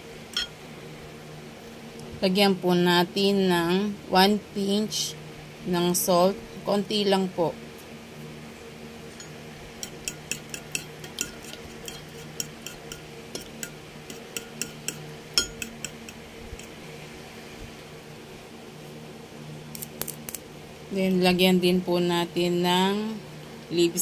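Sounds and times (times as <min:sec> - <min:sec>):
low steady hum: 0:00.0 - 0:24.0
spoon clinking against bowl: 0:09.2 - 0:16.7.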